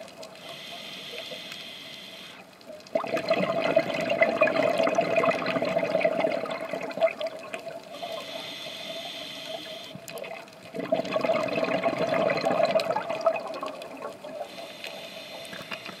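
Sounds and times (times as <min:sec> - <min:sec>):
hissing regulator inhale: 0:00.4 - 0:02.5, 0:07.9 - 0:10.0, 0:14.4 - 0:16.0
bubbling exhale underwater: 0:02.9 - 0:07.9, 0:10.2 - 0:14.5.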